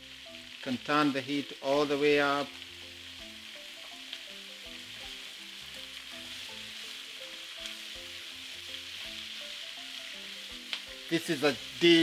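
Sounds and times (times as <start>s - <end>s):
soft plucked background music: 0.0s - 12.0s
vegetables sizzling in oil: 0.0s - 12.0s
spatula stirring in pan: 3.2s - 11.0s.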